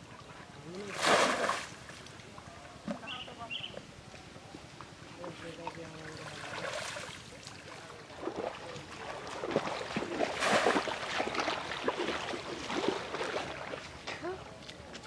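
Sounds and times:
shallow water splashing: 0.8s - 2.2s, 5.3s - 14.0s.

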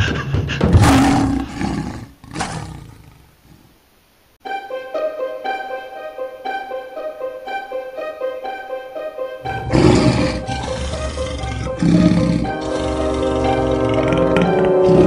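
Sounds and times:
lion roaring: 0.8s - 3.7s, 9.5s - 15.0s
plucked-string music: 12.4s - 15.0s.

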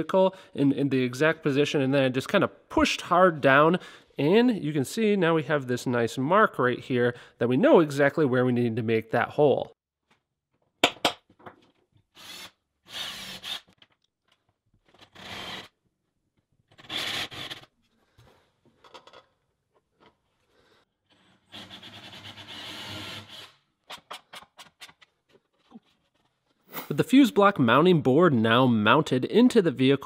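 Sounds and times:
drill boring through plastic: 12.2s - 13.7s, 14.9s - 15.7s.

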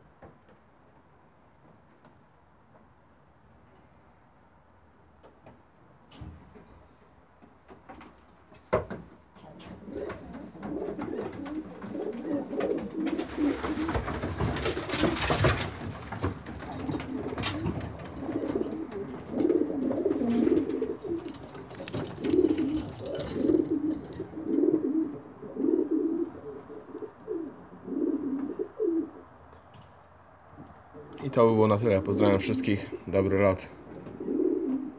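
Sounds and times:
rustling: 9.4s - 27.4s
pigeons cooing: 9.5s - 29.4s, 30.6s - 34.9s.

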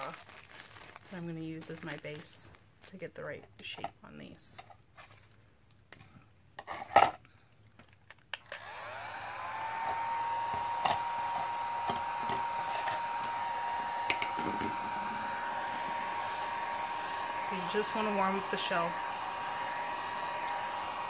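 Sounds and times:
heat gun fan whine: 8.5s - 21.0s.

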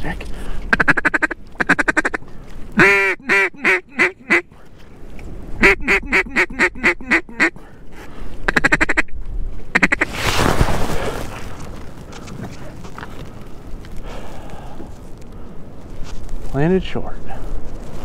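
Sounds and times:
duck call quacks: 0.7s - 2.2s, 2.8s - 4.5s, 5.6s - 7.6s, 8.5s - 9.1s, 9.7s - 10.1s.

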